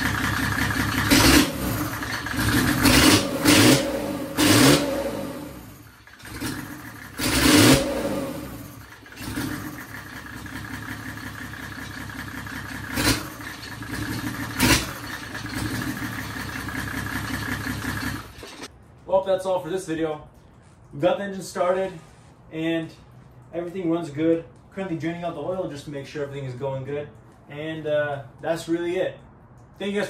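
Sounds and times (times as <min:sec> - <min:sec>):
diesel engine revving and idling: 0:00.0 - 0:18.7.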